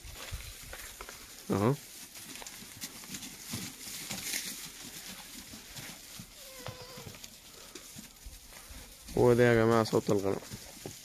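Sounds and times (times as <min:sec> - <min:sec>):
rustling on straw: 0:00.0 - 0:11.0
goat bleat: 0:06.3 - 0:07.2.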